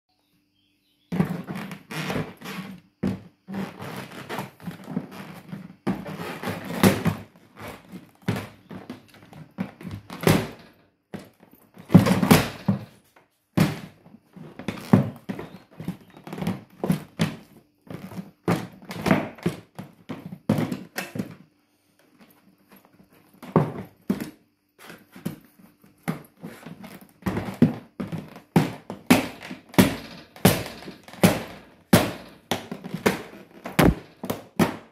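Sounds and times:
boots stamping on plastic suitcase: 3.9s - 12.9s, 13.6s - 21.4s, 26.1s - 34.9s.

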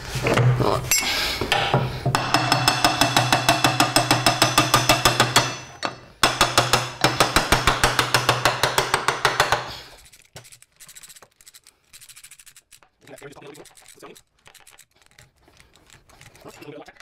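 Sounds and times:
hammer tapping on metal casing: 1.6s - 9.7s.

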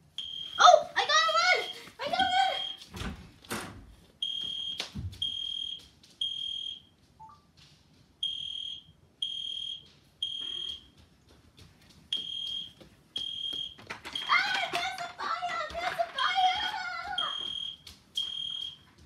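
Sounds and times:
toy fire alarm beeps: 0.2s - 0.7s, 1.6s - 2.9s, 4.2s - 7.4s, 8.2s - 10.9s, 12.2s - 14.8s, 17.2s - 18.9s.

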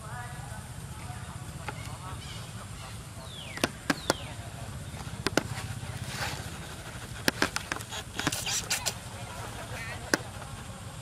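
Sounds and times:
sharp clicks: 3.5s - 4.3s.

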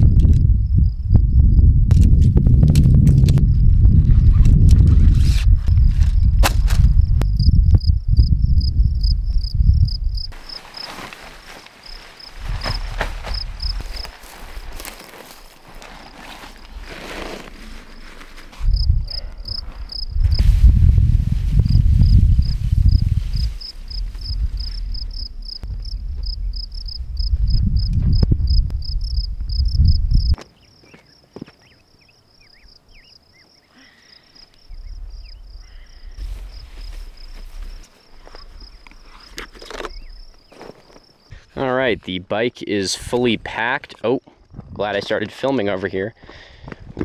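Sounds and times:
insect chirping: 0.0s - 1.7s, 5.6s - 20.6s, 21.2s - 41.4s
wind buffeting microphone: 0.0s - 10.4s, 11.8s - 14.9s, 18.5s - 30.4s, 34.7s - 39.2s, 46.5s - 47.0s
tent fabric rustling: 10.3s - 25.2s, 36.1s - 39.9s.

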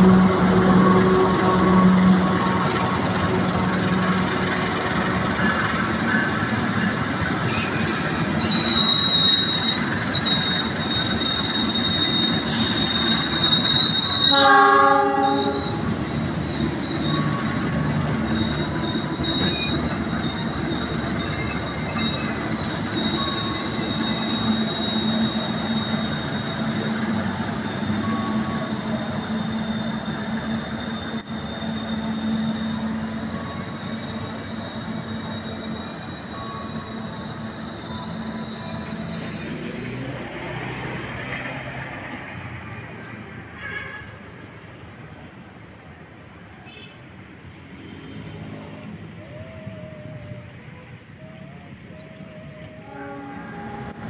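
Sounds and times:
locomotive horn blast: 0.0s - 2.7s, 12.0s - 18.3s, 52.3s - 54.0s
train wheels squealing on rails: 0.0s - 54.0s.

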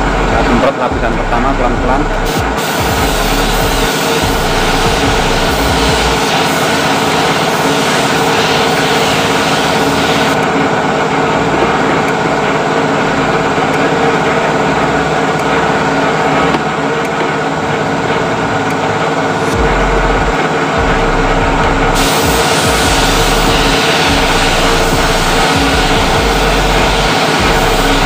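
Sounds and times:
air compressor running: 0.0s - 28.0s
spray gun hissing: 2.2s - 10.4s, 22.0s - 28.0s.

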